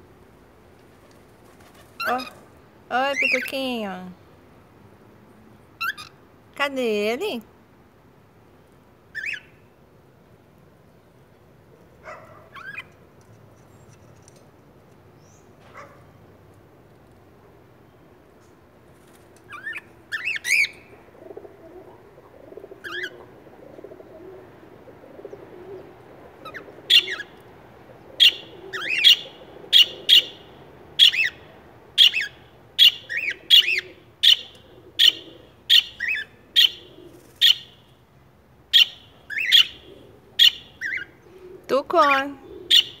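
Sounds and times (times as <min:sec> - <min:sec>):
cockatiels chirping: 0:32.0 - 0:36.8, 0:40.4 - 0:41.1.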